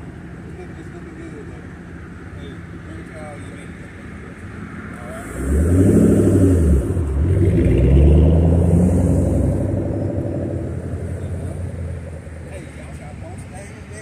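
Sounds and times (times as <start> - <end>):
car engine revving: 4.5 - 13.8.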